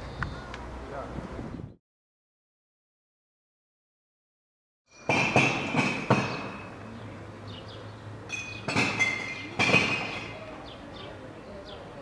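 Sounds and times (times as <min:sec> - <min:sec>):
sharp ringing knocks: 0:04.9 - 0:06.8, 0:08.3 - 0:10.5
steady background noise: 0:04.9 - 0:12.0.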